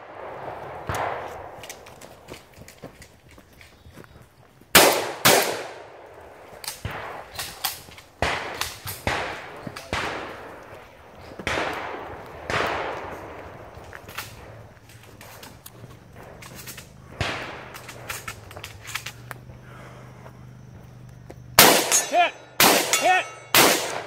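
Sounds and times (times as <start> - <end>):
shotgun shots echoing: 0.0 - 2.3, 4.7 - 14.6, 16.1 - 18.8, 21.6 - 24.0.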